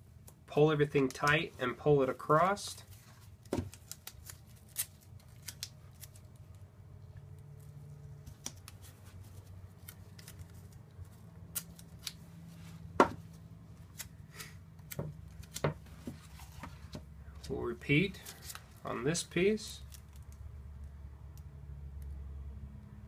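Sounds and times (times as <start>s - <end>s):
tape tearing: 2.8s - 6.6s, 7.5s - 12.3s, 13.8s - 16.7s.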